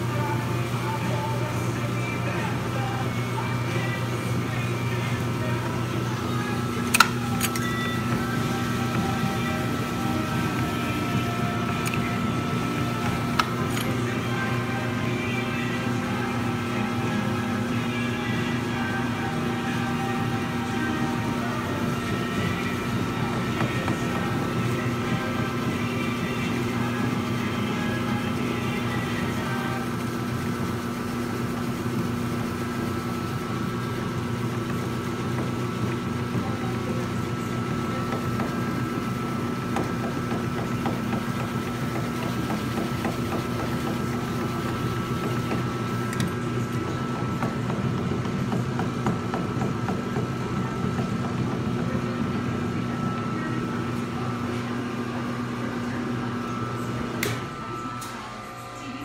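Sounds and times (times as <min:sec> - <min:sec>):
freezer motor hum with whine: 0:00.0 - 0:59.0.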